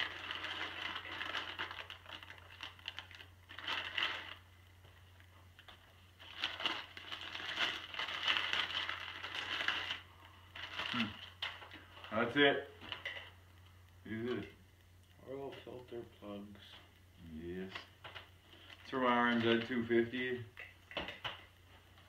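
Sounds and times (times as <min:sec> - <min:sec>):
packaging crinkling and tearing: 0:00.0 - 0:13.3.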